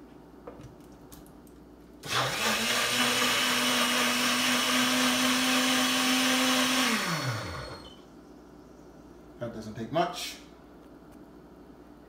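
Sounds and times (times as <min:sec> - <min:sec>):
blender motor running: 0:02.0 - 0:08.0.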